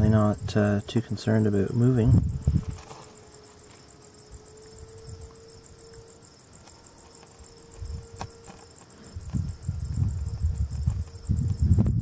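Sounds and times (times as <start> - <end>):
insect chirping trill: 0.0 - 12.0
low rumbling: 1.9 - 2.8.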